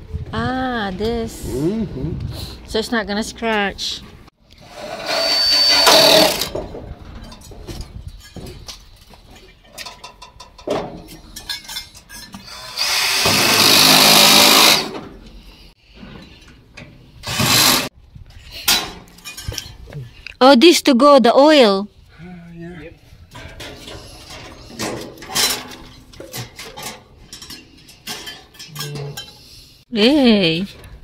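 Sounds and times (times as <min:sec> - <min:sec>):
cordless drill driving screws: 0:04.6 - 0:06.5, 0:12.4 - 0:15.0, 0:17.2 - 0:17.9.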